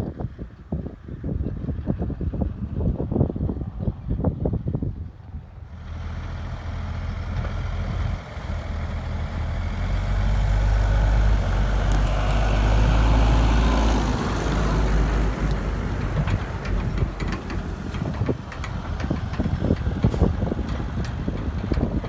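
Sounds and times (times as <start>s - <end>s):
tractor diesel engine driving past: 5.5s - 22.0s.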